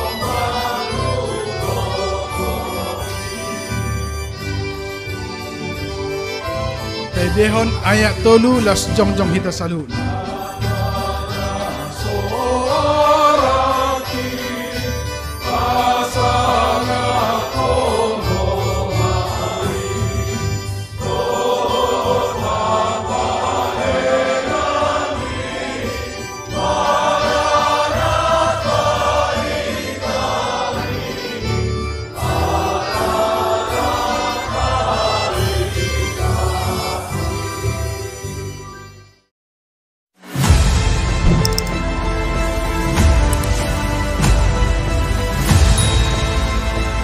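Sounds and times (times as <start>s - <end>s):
choir and congregation singing hymn: 0.0s - 3.8s, 10.0s - 38.0s
low instrumental accompaniment: 4.1s - 10.8s, 40.8s - 47.0s.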